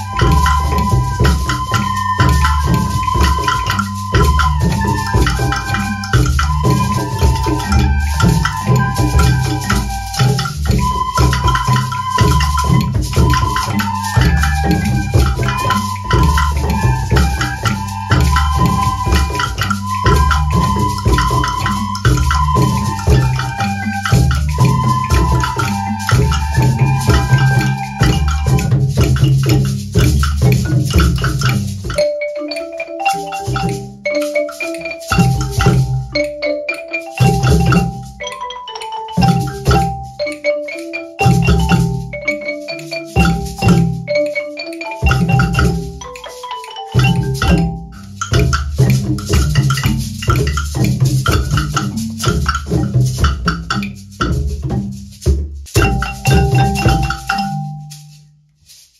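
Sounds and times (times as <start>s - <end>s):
children playing recorders: 0.0s - 29.1s
low accompaniment: 0.0s - 32.0s
wooden xylophones struck with mallets: 0.0s - 58.9s.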